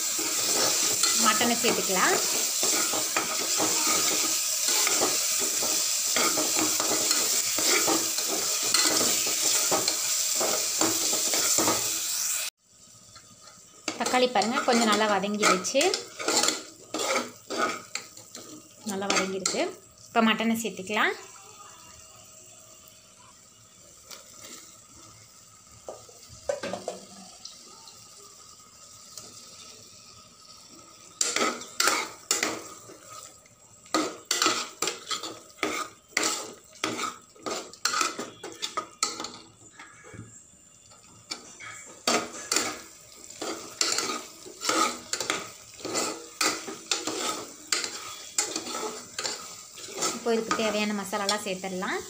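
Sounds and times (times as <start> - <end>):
ladle scraping and clinking in pot: 14.0 - 18.5, 33.9 - 39.4, 43.4 - 50.6.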